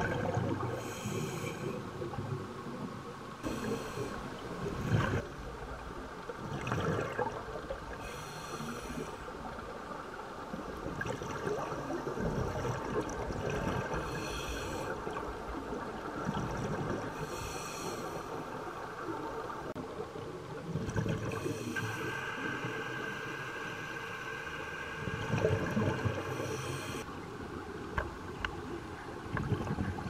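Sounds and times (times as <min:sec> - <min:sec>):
exhaled bubbles gushing: 0:00.0 - 0:00.8, 0:06.4 - 0:07.7, 0:10.9 - 0:14.1, 0:15.1 - 0:17.2, 0:20.6 - 0:21.6, 0:25.1 - 0:26.4, 0:29.3 - 0:30.0
regulator breathing: 0:21.3 - 0:27.1.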